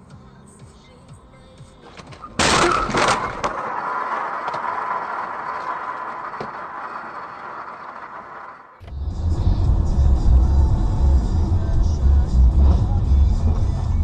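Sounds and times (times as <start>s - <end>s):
car crash impact: 2.0s - 9.0s
breaking and cracking: 2.4s - 6.7s.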